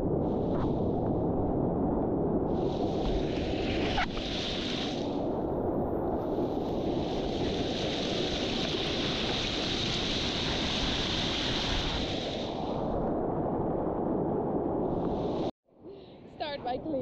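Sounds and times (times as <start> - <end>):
wind rumbling on microphone: 0.0 - 15.5
sea surf: 2.5 - 13.0.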